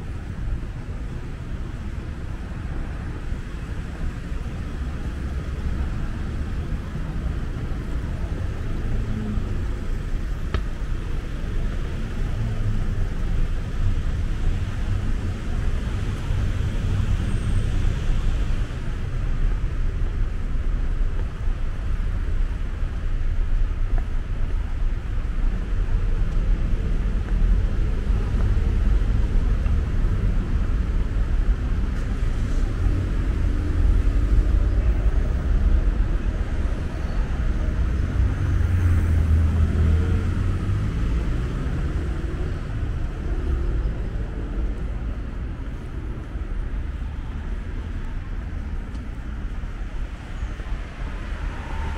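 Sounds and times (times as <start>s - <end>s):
cars driving by: 0.0s - 51.9s
vehicle accelerating: 37.8s - 44.9s.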